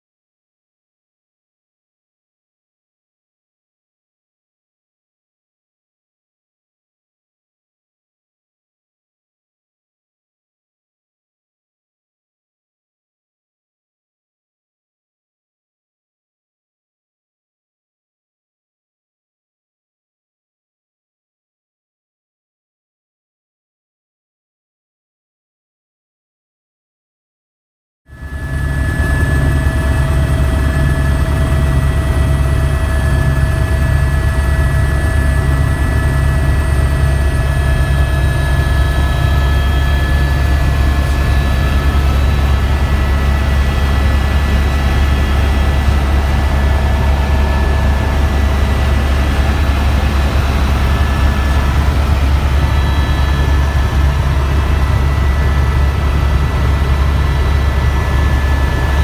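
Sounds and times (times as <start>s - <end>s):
helicopter rotor and engine drone: 28.1s - 59.0s
high whining tones: 28.1s - 59.0s.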